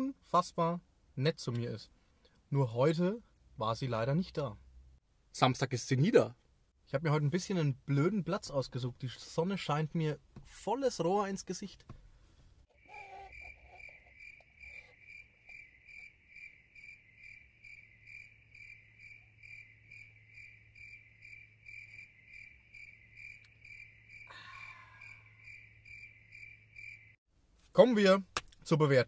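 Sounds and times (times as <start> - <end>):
cricket chirping: 12.7 - 27.2.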